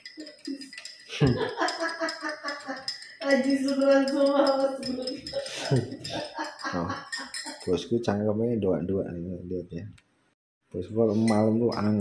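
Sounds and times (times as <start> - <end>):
spoon clinking against glass: 0.0 - 8.0, 11.1 - 12.0.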